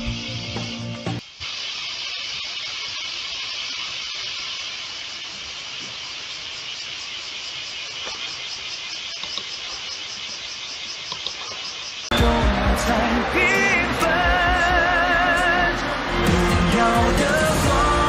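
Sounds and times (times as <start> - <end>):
steady hiss: 0.0 - 12.2.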